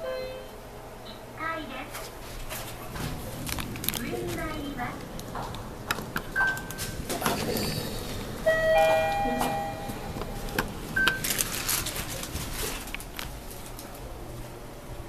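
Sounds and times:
elevator arrival chime: 0.0 - 0.6, 6.3 - 7.1, 8.3 - 11.4.

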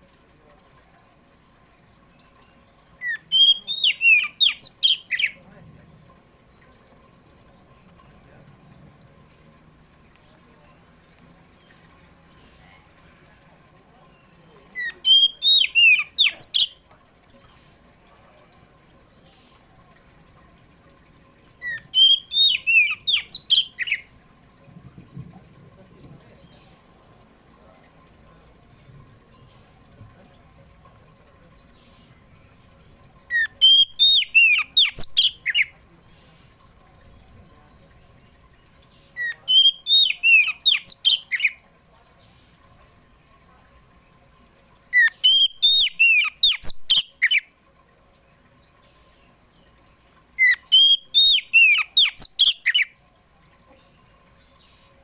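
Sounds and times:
magpie-robin singing: 2.4 - 5.4, 14.1 - 16.8, 21.6 - 24.1, 33.3 - 36.4, 38.8 - 42.6, 44.9 - 47.5, 50.4 - 52.9.

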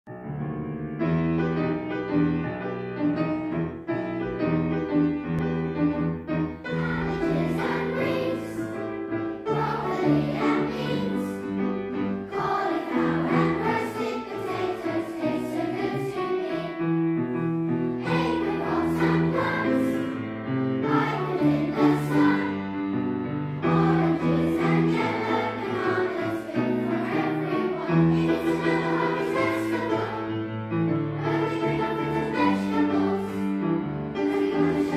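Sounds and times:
children's choir singing: 3.0 - 34.9.

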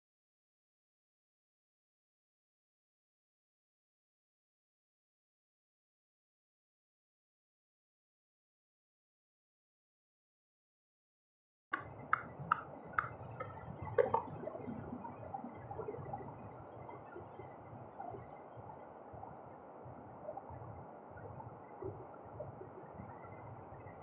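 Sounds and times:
low steady rush: 11.8 - 24.0.

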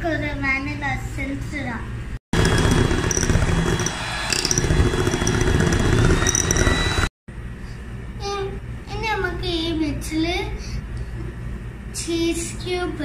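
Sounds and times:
electric hand mixer whirring: 2.4 - 7.1.

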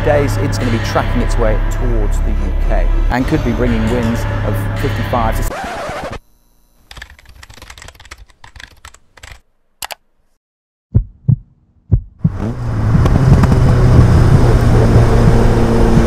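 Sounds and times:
deep thumps: 10.9 - 15.4
car engine running: 12.2 - 16.0.

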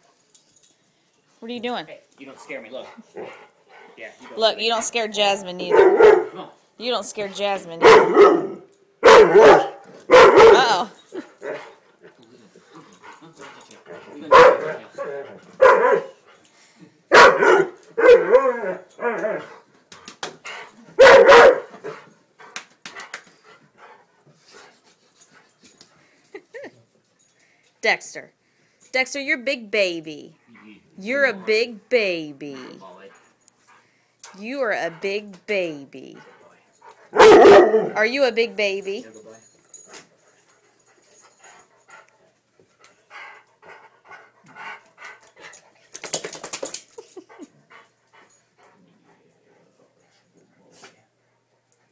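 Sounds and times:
dog panting hard: 2.3 - 5.8, 11.1 - 16.5, 19.4 - 21.1, 21.8 - 26.0, 36.1 - 37.3, 40.0 - 45.9, 46.9 - 51.9.

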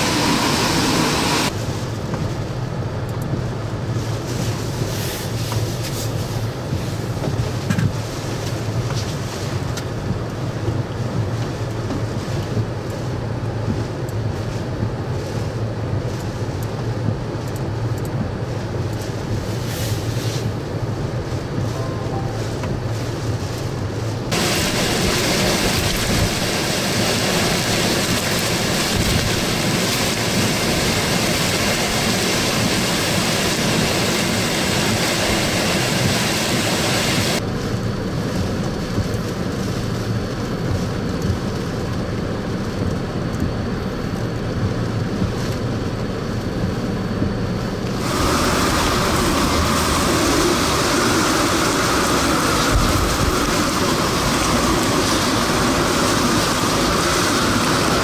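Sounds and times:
waves washing through: 0.0 - 2.0, 18.5 - 37.5, 47.7 - 58.0
heavy rain: 0.0 - 58.0
hurricane wind: 0.0 - 58.0.

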